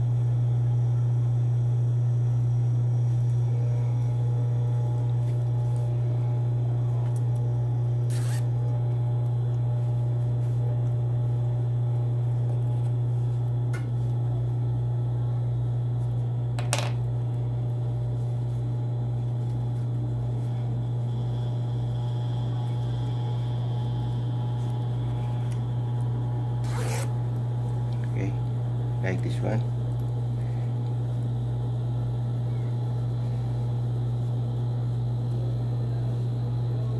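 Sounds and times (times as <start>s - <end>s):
sewing machine motor humming: 8.0s - 8.7s, 20.8s - 27.4s.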